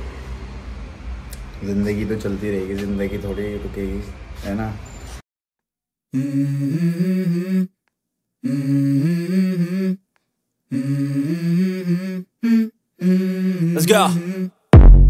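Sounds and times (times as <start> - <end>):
person humming a melody: 6.1 - 7.8, 8.4 - 10.0, 10.7 - 14.7.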